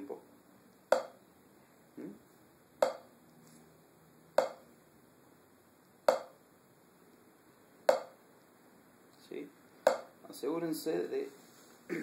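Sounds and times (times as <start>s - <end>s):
drumstick tapping practice pad: 0.9s - 1.2s, 2.8s - 3.1s, 4.4s - 4.7s, 6.1s - 6.4s, 7.9s - 8.2s, 9.8s - 10.2s.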